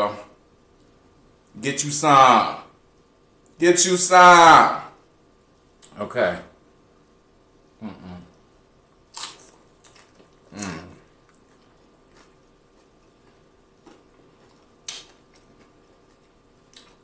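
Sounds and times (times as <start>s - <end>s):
man humming: 7.8s - 8.4s, 10.5s - 11.1s
chip crunching: 9.1s - 17.0s
soft chewing: 9.1s - 17.0s.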